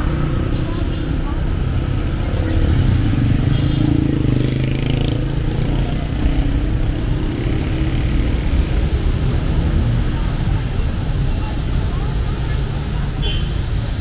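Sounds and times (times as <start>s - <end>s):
traffic rumble: 0.0s - 14.0s.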